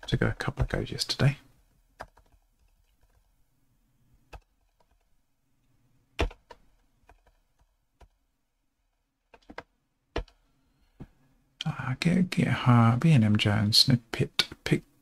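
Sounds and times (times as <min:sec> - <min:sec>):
computer keyboard keystrokes: 0:02.0 - 0:02.4.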